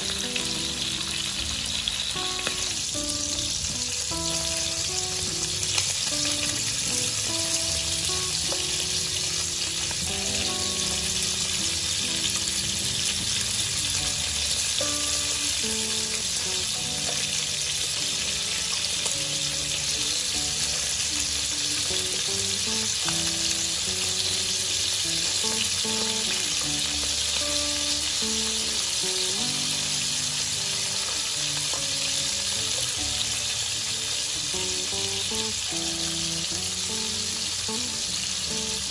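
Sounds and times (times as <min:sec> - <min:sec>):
meat sizzling in hot oil: 0:00.0 - 0:38.9.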